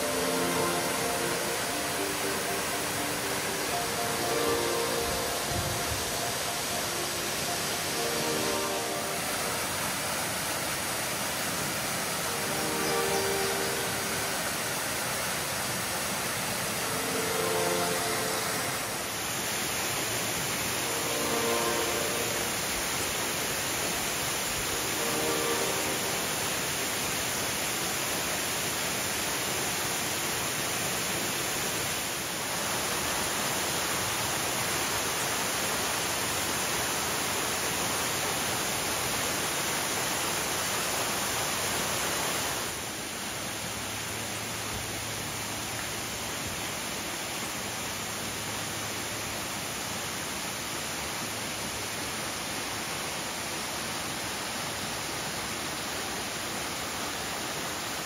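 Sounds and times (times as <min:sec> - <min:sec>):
waterfall splashing into pool: 0:19.1 - 0:58.0.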